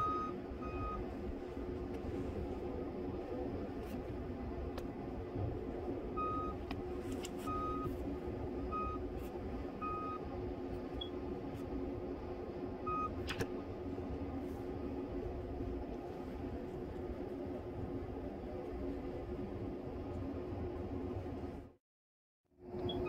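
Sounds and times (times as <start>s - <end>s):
reverse alarm beeps: 0.0s - 1.0s.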